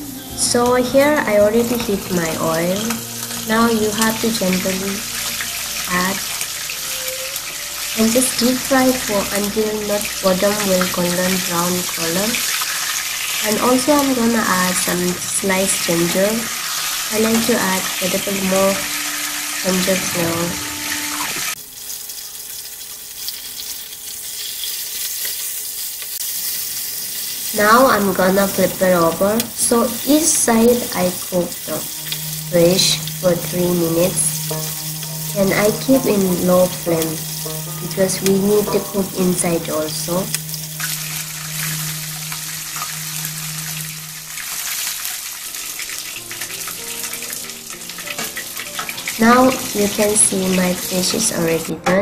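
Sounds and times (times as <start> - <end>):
fish sizzling in hot oil: 1.6 - 51.6
low steady hum: 27.5 - 44.4.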